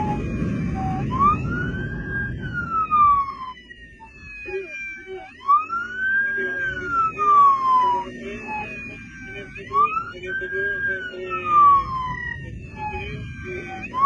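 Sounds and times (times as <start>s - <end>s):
wind rush: 0.0s - 4.5s
police motorcycle siren wailing: 0.0s - 14.0s.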